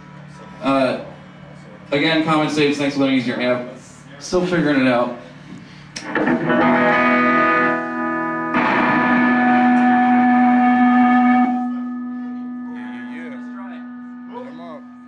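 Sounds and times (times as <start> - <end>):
electric guitar chords: 6.0 - 15.0.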